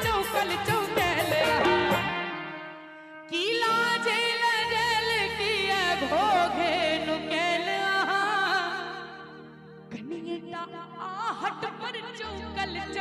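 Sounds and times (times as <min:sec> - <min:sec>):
woman singing into a microphone: 0:00.0 - 0:13.0.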